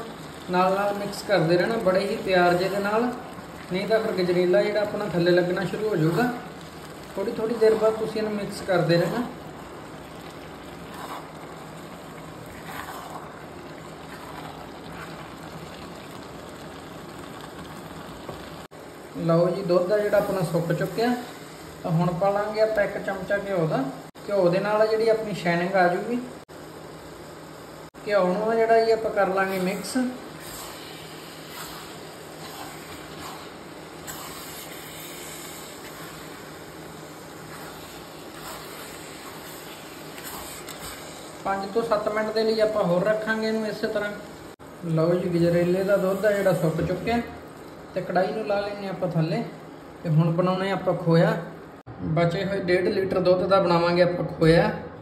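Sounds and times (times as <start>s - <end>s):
milk bubbling in a pan: 0.0s - 19.1s, 29.3s - 48.4s
stirring scrapes: 1.0s - 9.4s, 10.0s - 16.3s, 29.4s - 42.0s.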